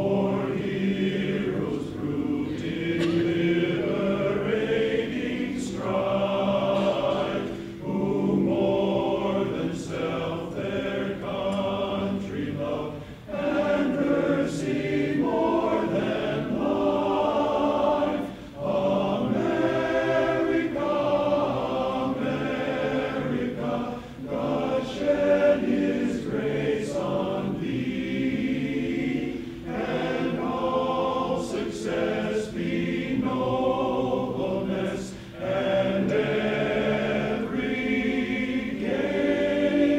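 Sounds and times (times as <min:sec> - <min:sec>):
men's chorus singing a cappella: 0:00.0 - 0:39.9.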